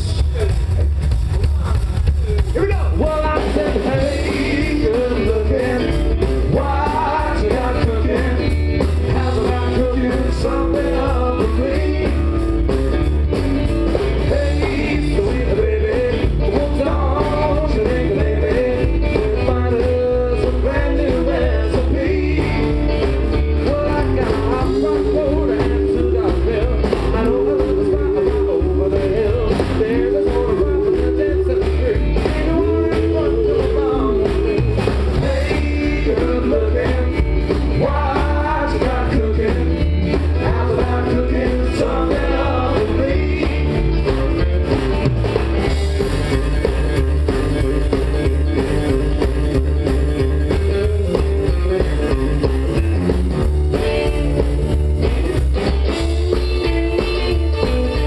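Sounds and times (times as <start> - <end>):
country rock band playing: 0.0 - 58.0
man singing: 1.5 - 12.7, 14.1 - 44.8.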